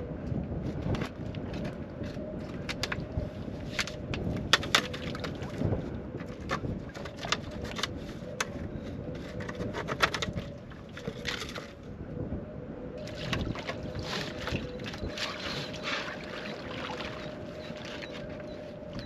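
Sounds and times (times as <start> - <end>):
steady engine hum: 0.0 - 19.0
plastic pipe knocking and scraping: 3.7 - 11.7
muddy water sloshing and splashing: 3.8 - 7.9, 13.0 - 19.0.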